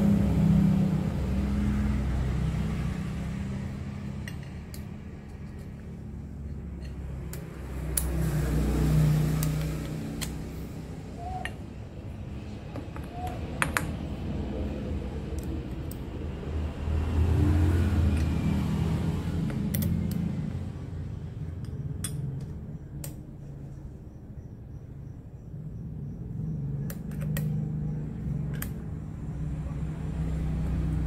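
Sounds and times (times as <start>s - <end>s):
metal clamps clinking and scraping: 4.2s - 7.4s.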